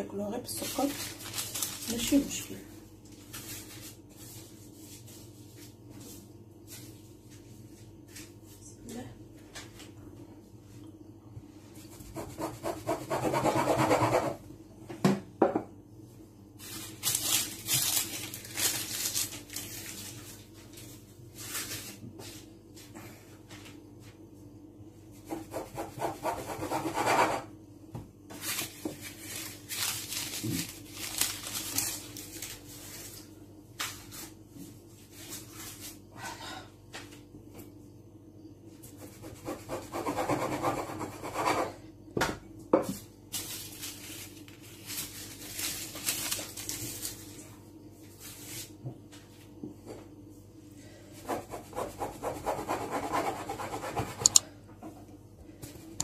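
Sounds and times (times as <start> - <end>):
sharp knocks on countertop: 15.0 - 15.7.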